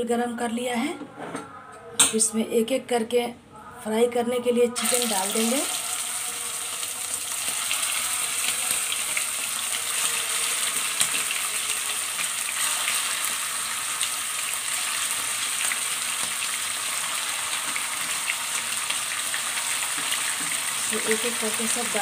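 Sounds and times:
chicken sizzling in hot oil: 4.8s - 22.0s.

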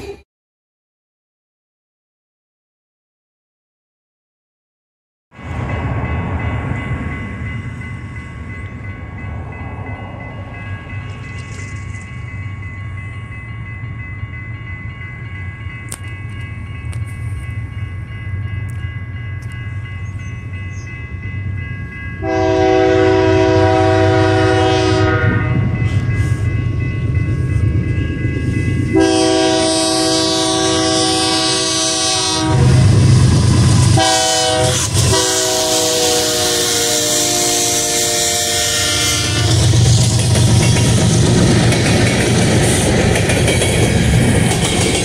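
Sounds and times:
diesel locomotives rumbling: 5.4s - 45.0s
train air horn blasts: 22.2s - 26.4s, 28.9s - 33.0s, 33.8s - 39.7s.

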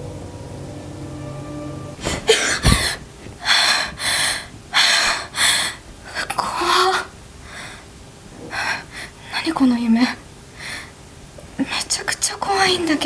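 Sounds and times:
dull thump: 2.0s - 3.0s
woman breathing hard and gasping: 2.0s - 5.8s, 10.6s - 11.0s.

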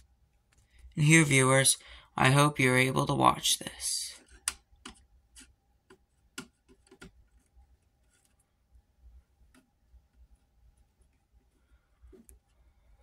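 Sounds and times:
faint plastic clicks and taps: 4.2s - 8.4s.

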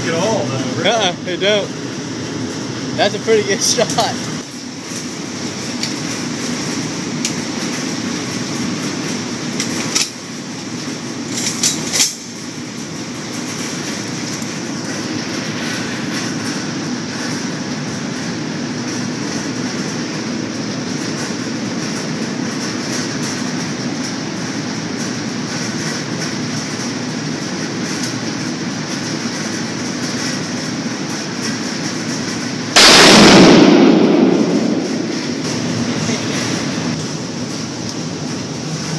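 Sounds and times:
steady background noise: 0.0s - 38.9s
loud rifle shot: 32.8s - 35.5s.

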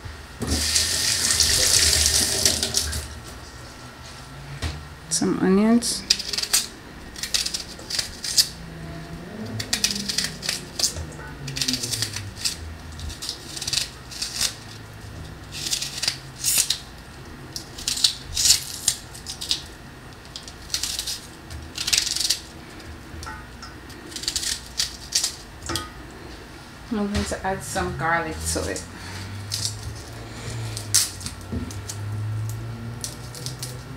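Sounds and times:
onion crackling and rustling: 0.4s - 4.2s, 6.0s - 8.6s, 9.4s - 23.2s, 23.8s - 27.4s, 28.0s - 33.9s.

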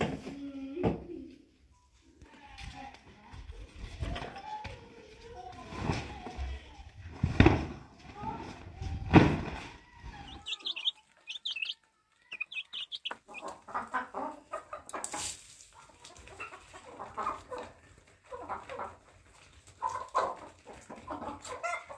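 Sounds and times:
thump: 9.0s - 9.7s
hens clucking: 9.5s - 21.9s
high chirps: 10.2s - 13.4s.

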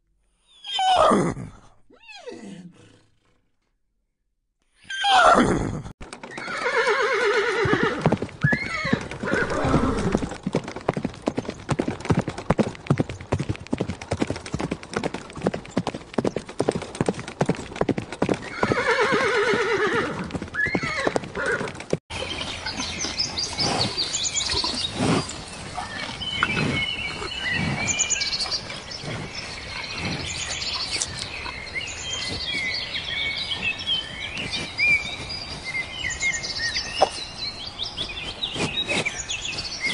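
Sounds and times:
horse neighing: 4.8s - 10.3s
hoofbeats: 6.0s - 39.9s.

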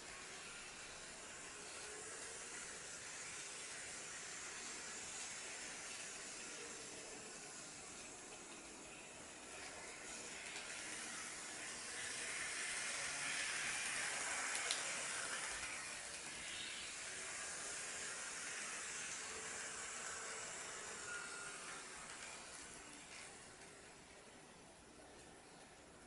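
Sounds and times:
model trains running on track: 0.0s - 26.0s.

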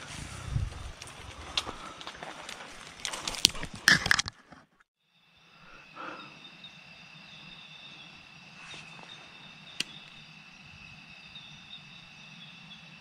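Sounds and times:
insects trilling: 5.0s - 13.0s.

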